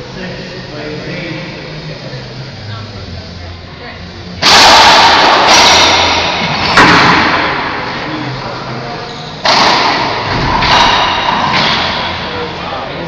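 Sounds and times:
ball hitting court walls: 4.4 - 7.8, 9.4 - 12.2
racquet striking ball: 4.4 - 7.9, 9.4 - 12.2.

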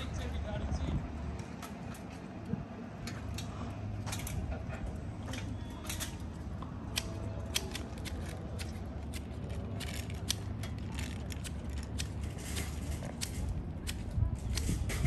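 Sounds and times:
hand shears snipping: 6.9 - 15.0.

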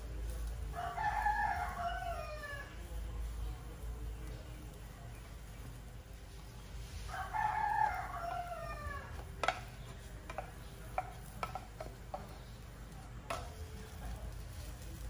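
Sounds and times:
rooster crowing: 0.7 - 2.8, 7.1 - 9.2
spatula knocking frying pan: 9.1 - 12.6, 13.3 - 13.7.

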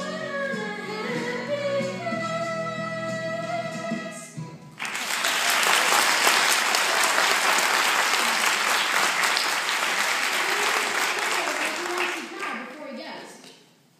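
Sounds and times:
audience applauding: 4.8 - 12.7.

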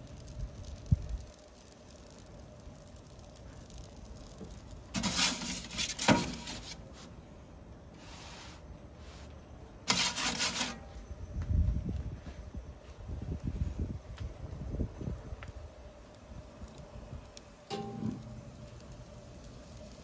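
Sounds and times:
metal pizza peel scraping stone: 4.9 - 6.8, 9.8 - 10.9.

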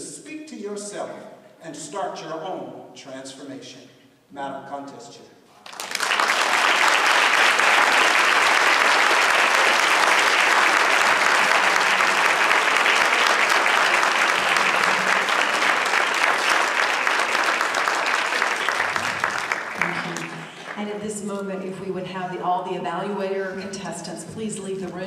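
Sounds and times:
audience applauding: 5.6 - 21.0.

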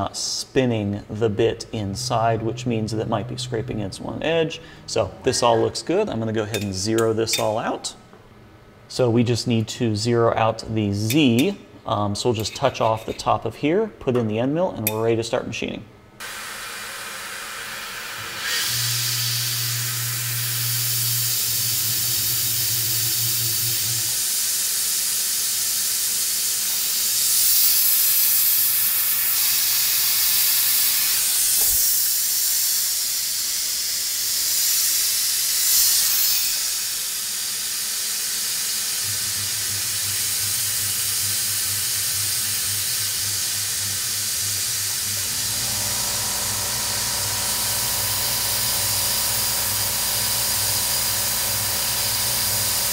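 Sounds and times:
low hum: 1.1 - 5.4, 39.0 - 51.7
high-pitched machine whine: 1.8 - 5.2, 16.2 - 52.9
compressed air hiss: 16.2 - 52.9.

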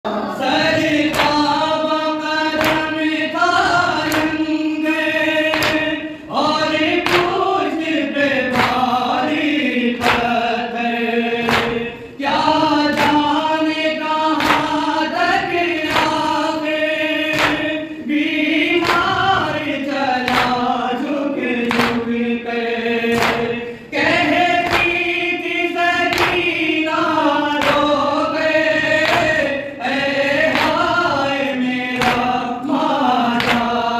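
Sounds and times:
men chanting in unison: 0.0 - 33.9
hands beating on chests: 14.4 - 14.8, 23.2 - 23.6.

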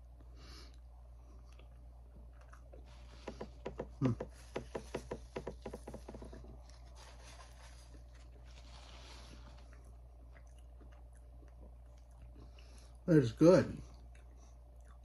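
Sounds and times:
man chewing with wet smacks: 0.0 - 6.9, 9.4 - 13.1, 13.7 - 15.0.

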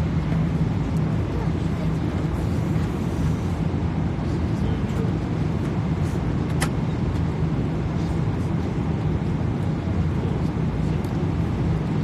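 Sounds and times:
airliner cabin engine rumble: 0.0 - 12.0.

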